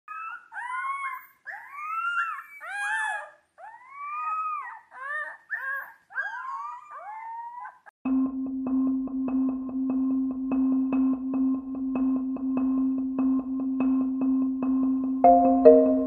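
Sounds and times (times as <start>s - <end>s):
wolf pups howling: 0.1s - 7.9s.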